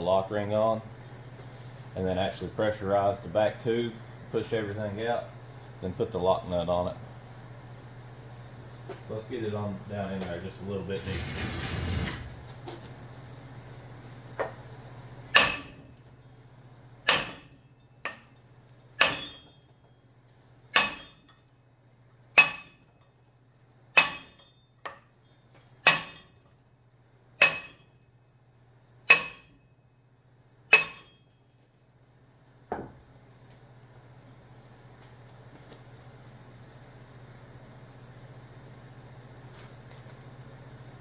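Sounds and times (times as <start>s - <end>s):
hammer striking metal: 15.3s - 15.9s, 17.0s - 18.4s, 19.0s - 19.6s, 20.7s - 21.4s, 22.4s - 22.9s, 24.0s - 25.0s, 25.8s - 26.5s, 27.4s - 28.0s, 29.1s - 29.6s, 30.7s - 31.4s.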